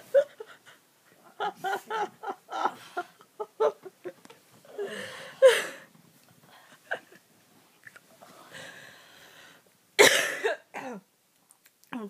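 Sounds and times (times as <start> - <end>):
breathy rustling noise: 4.1 - 9.8.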